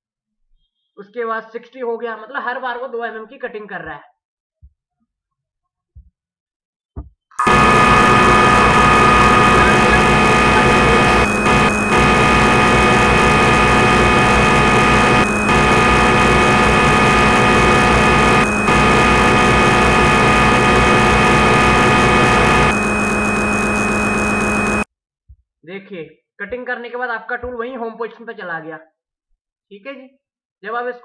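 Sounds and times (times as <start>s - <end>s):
lathe machine hum: 7.4s - 24.8s.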